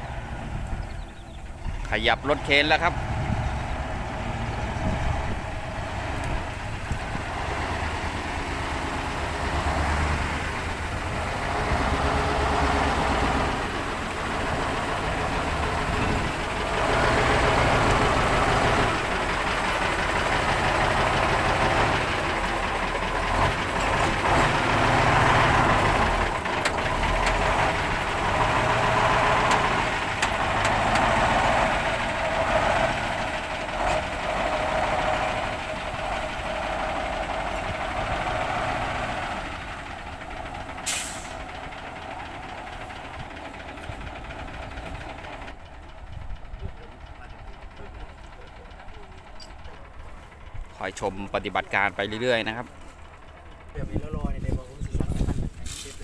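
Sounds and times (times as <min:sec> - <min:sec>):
diesel engine running: 0:00.0 - 0:56.0
brief hiss: 0:40.8 - 0:41.4.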